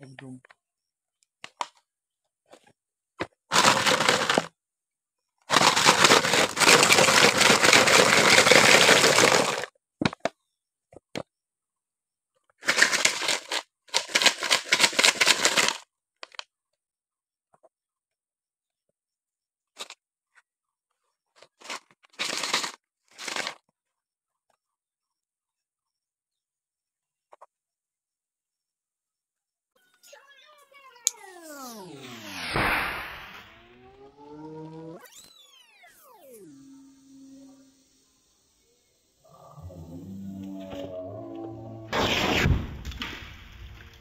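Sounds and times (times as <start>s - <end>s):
plastic bottles crackling: 3.5s - 4.5s, 5.5s - 9.7s, 21.6s - 23.6s.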